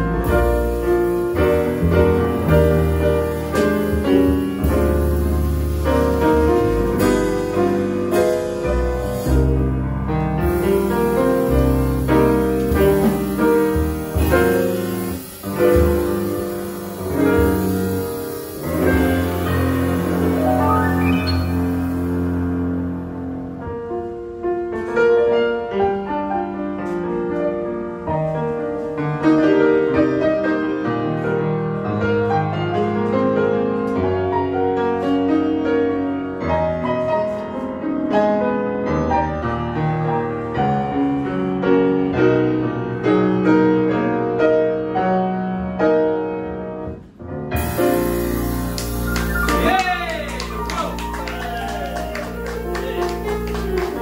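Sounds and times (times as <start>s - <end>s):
walking upright bass: 0.0s - 15.0s
drums: 0.0s - 25.3s, 46.9s - 54.0s
grand piano: 0.0s - 54.0s.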